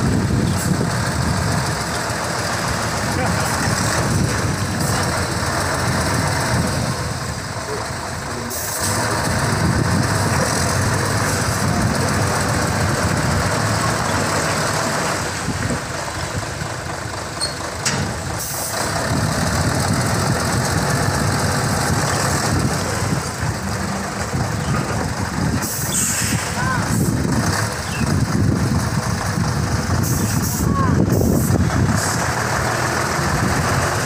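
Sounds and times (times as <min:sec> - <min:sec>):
truck diesel engine running: 0:00.0 - 0:34.0
sharp air hiss: 0:25.6 - 0:26.6.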